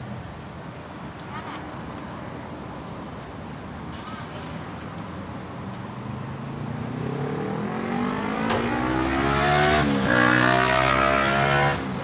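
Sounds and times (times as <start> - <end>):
vehicle engine accelerating: 6.3 - 12.0.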